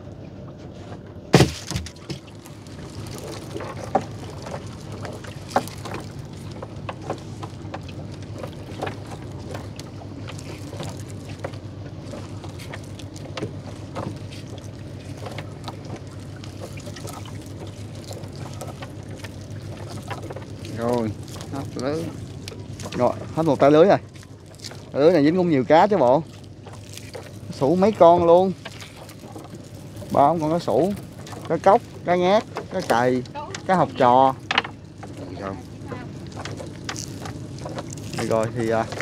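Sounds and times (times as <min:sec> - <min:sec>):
steady low hum: 0:00.0 - 0:39.0
knocks on wooden boat: 0:01.3 - 0:02.3, 0:34.4 - 0:35.2
water splashes: 0:01.4 - 0:39.0
water pouring off net: 0:12.0 - 0:25.0.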